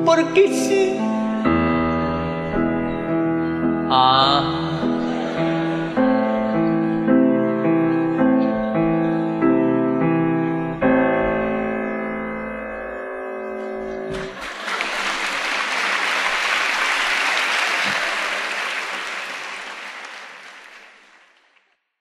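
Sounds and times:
piano chord ringing: 0.0 - 14.4
audience applause: 4.7 - 6.7, 14.3 - 21.8.

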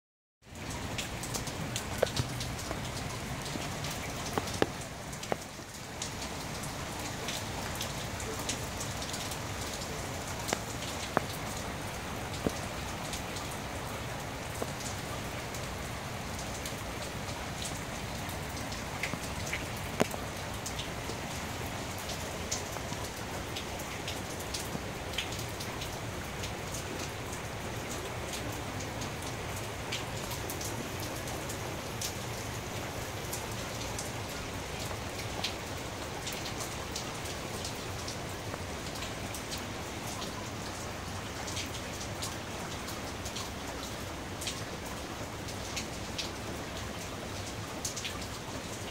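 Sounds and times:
steady rain on street: 0.4 - 48.9
close raindrop taps: 0.8 - 13.6, 16.3 - 27.1.

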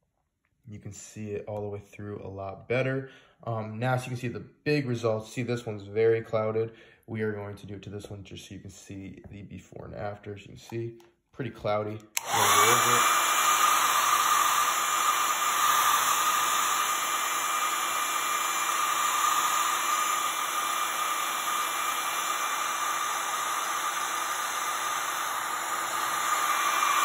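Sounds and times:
hair dryer running: 12.2 - 27.0.

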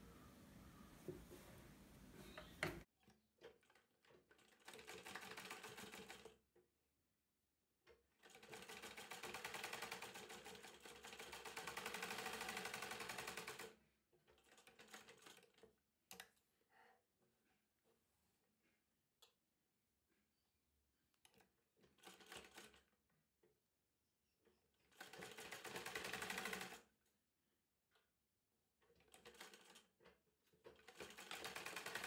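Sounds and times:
sewing machine stitching: 3.4 - 6.4, 8.1 - 15.7, 24.8 - 26.8, 30.6 - 32.0.

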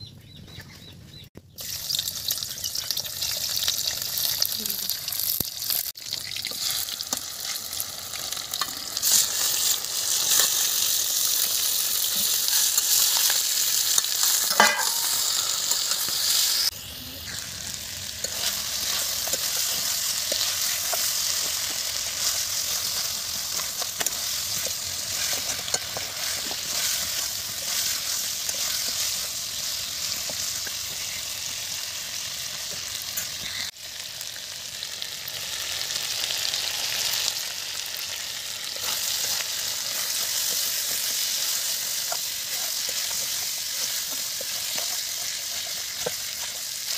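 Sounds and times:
food sizzling in hot oil: 1.5 - 46.9
metal spoon scraping a pan: 8.5 - 16.4, 18.2 - 31.3.

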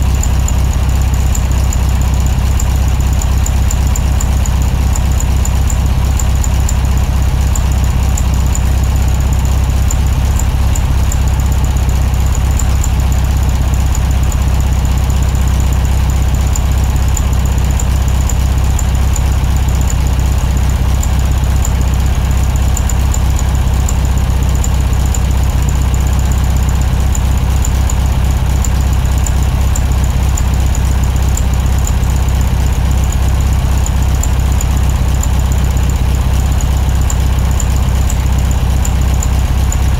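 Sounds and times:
engine rumbling at low revs: 0.0 - 39.9.

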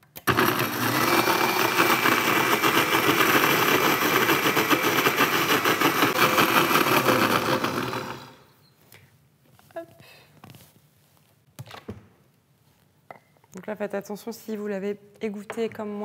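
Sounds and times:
blender running: 0.1 - 8.5.

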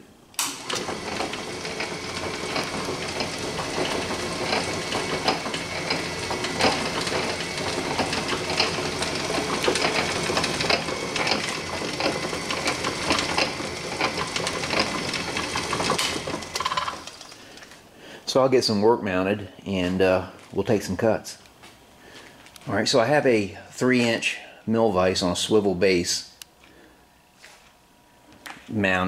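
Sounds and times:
metal shaper running: 0.5 - 17.5
ram clacking and clattering: 0.7 - 17.2.

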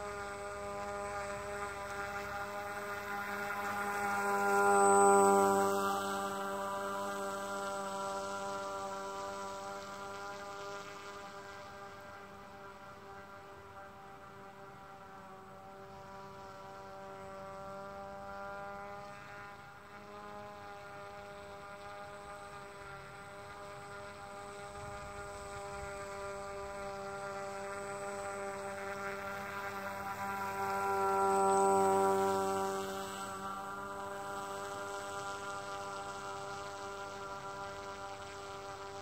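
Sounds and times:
fan boat motor humming: 0.0 - 39.0.

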